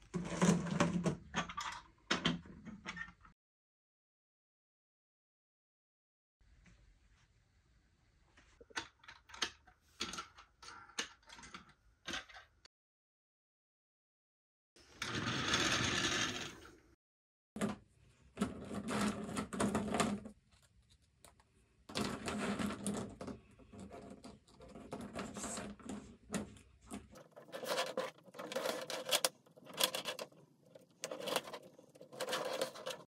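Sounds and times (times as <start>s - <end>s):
plastic track pieces clattering: 21.9s - 33.0s.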